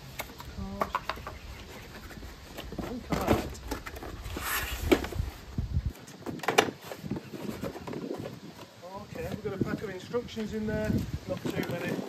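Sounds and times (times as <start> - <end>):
cardboard sliding rustle: 1.4 - 9.4.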